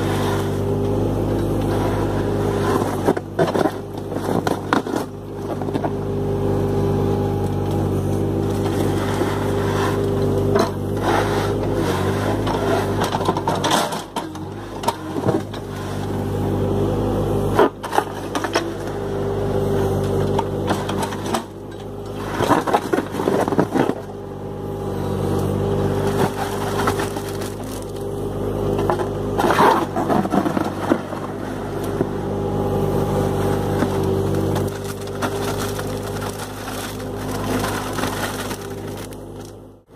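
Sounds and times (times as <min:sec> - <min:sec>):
bucket scraping wet concrete: 0:00.0 - 0:00.7, 0:01.6 - 0:05.8, 0:08.4 - 0:16.2, 0:25.9 - 0:28.0, 0:28.8 - 0:32.2, 0:33.1 - 0:39.2
excavator engine running: 0:00.0 - 0:39.9.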